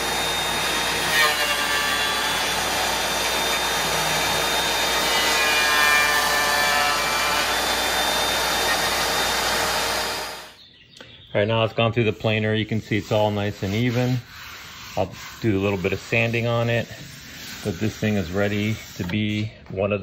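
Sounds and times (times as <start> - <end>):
thickness planer running under load: 0.0 - 10.6.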